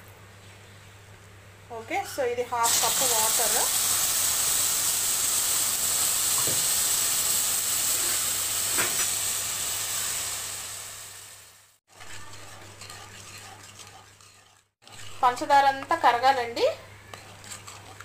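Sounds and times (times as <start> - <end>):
water sizzling in a hot pan: 2.6 - 12.8
wooden spatula stirring syrup: 11.9 - 18.0.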